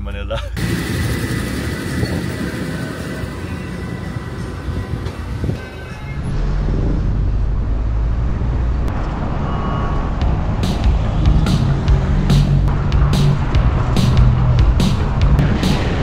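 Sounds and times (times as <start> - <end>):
car engine and road noise: 0.0 - 16.0.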